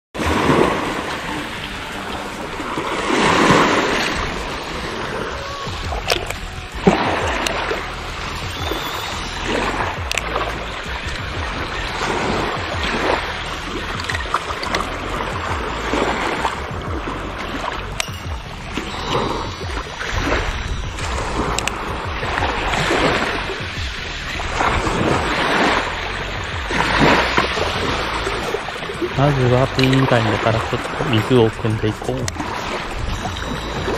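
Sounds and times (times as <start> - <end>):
waves splashing against rocks: 0.2 - 33.9
wind rumbling on microphone: 0.2 - 33.9
sharp clicks: 10.0 - 10.3.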